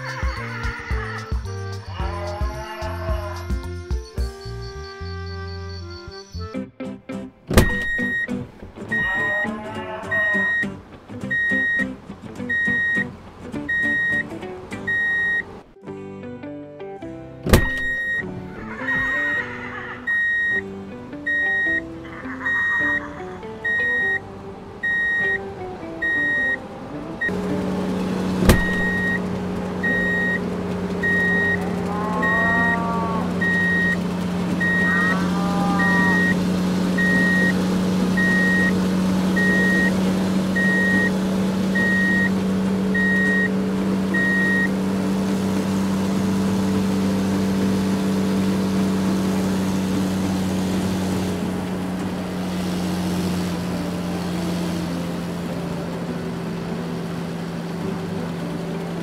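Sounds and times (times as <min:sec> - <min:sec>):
truck engine running: 0:00.0 - 0:06.5, 0:07.4 - 0:15.8, 0:17.4 - 0:59.0
short cries: 0:01.7 - 0:03.7, 0:08.9 - 0:10.8, 0:17.6 - 0:20.7, 0:21.4 - 0:24.2, 0:31.0 - 0:37.5
high reversing beep: 0:07.6 - 0:13.1, 0:13.7 - 0:15.5, 0:17.6 - 0:18.3, 0:20.1 - 0:20.7, 0:21.3 - 0:21.8, 0:23.6 - 0:24.2, 0:24.8 - 0:25.4, 0:26.0 - 0:26.6, 0:28.5 - 0:34.0, 0:34.6 - 0:44.8.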